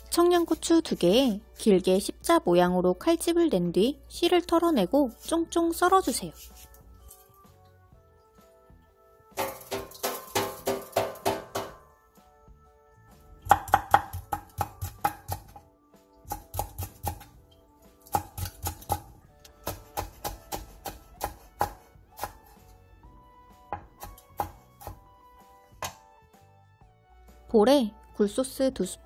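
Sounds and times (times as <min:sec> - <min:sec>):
soft background music: 0:00.0 - 0:29.0
knife chopping on wooden board: 0:09.4 - 0:11.8, 0:13.4 - 0:15.6, 0:16.2 - 0:17.3, 0:18.0 - 0:22.6, 0:23.8 - 0:25.1.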